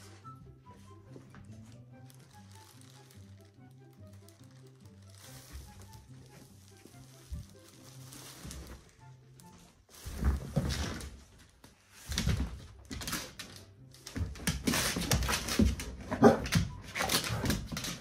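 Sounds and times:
plastic trash bag crinkling: 1.6s - 13.4s.

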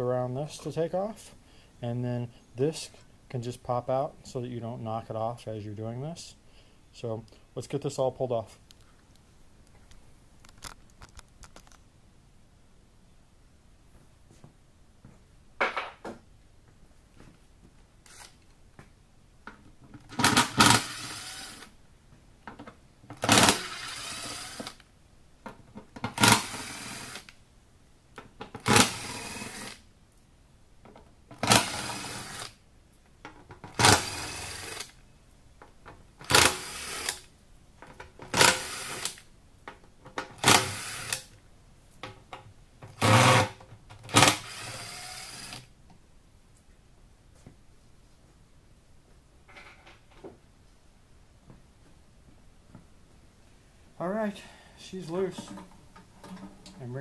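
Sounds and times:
cordless power driver bursts: 20.1s - 21.7s, 23.2s - 24.8s, 26.2s - 27.3s, 33.8s - 34.9s, 44.1s - 45.7s.

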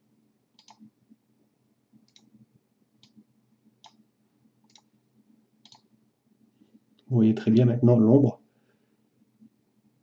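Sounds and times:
low room hum: 0.0s - 10.0s
faint computer mouse clicks: 0.6s - 0.9s, 2.0s - 2.3s, 3.0s - 3.2s, 3.8s - 4.0s, 4.6s - 4.9s, 5.6s - 5.9s.

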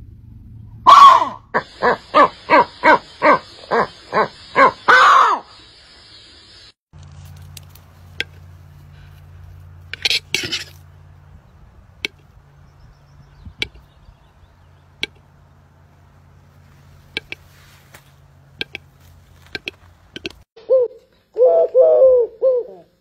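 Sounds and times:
scratchy bird rasp: 9.8s - 10.9s, 16.6s - 20.4s.

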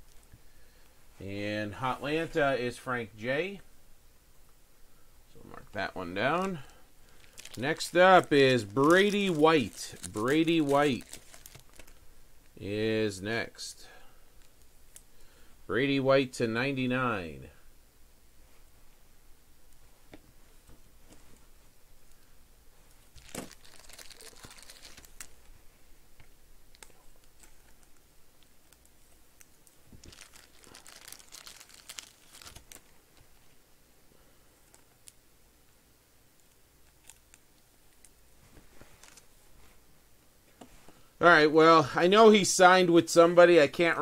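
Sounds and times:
plastic wrappers crinkling: 6.4s - 12.0s, 23.0s - 25.5s, 26.7s - 33.5s, 36.4s - 38.2s, 38.8s - 39.4s.

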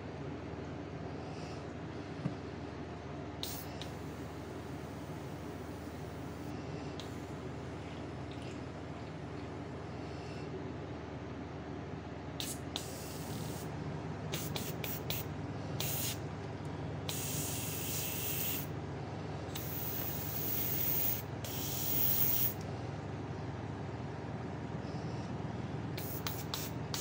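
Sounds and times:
airbrush spraying: 3.4s - 7.2s, 12.4s - 13.7s, 14.3s - 16.2s, 17.1s - 18.7s, 19.6s - 22.6s, 26.0s - 27.0s.

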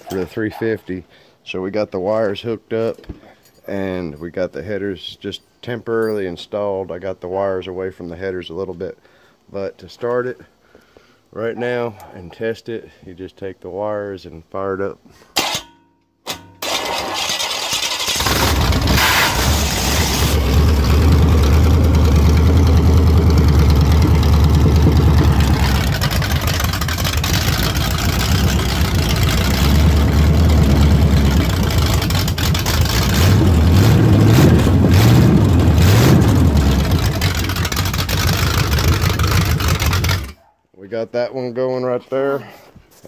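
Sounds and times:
loud car engine revving: 18.1s - 40.3s.

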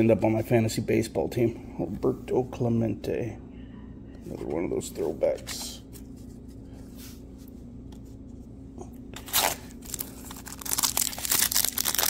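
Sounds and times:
foil wrapper crinkling and tearing: 9.2s - 12.0s.

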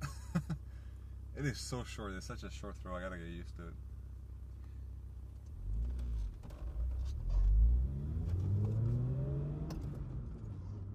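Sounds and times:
car engine revving: 5.4s - 10.9s.

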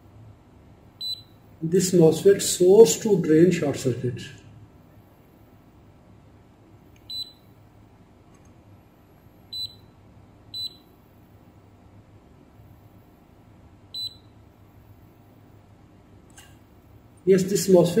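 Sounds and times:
multimeter high-pitched beeps: 1.0s - 1.4s, 7.0s - 7.5s, 9.5s - 11.0s, 13.9s - 14.3s.

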